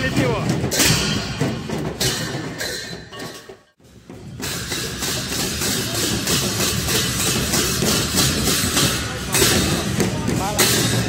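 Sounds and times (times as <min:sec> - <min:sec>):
crowd: 0:00.0 - 0:02.9, 0:04.1 - 0:11.0
hand cymbals clashing: 0:04.4 - 0:11.0.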